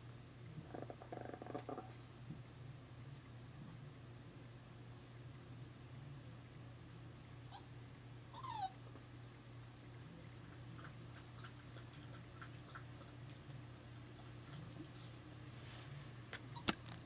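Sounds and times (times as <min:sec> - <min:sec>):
steady low hum: 0:00.0 - 0:17.0
puppy whining: 0:07.5 - 0:07.7, 0:08.3 - 0:08.8, 0:16.5 - 0:16.8
puppy squeaks: 0:08.4 - 0:08.8, 0:16.5 - 0:16.8.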